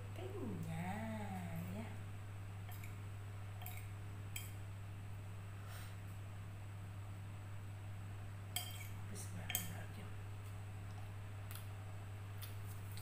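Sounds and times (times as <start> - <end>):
cutlery clinking on a plate: 8.6 - 9.7.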